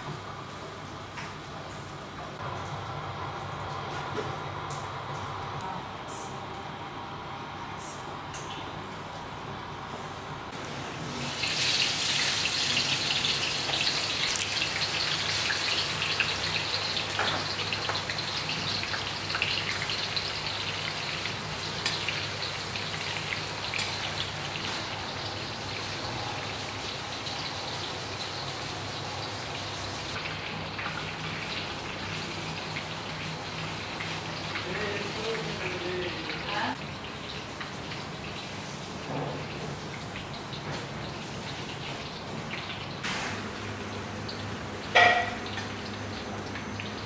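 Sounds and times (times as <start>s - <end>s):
onions sizzling in hot oil: 10.5s - 47.0s.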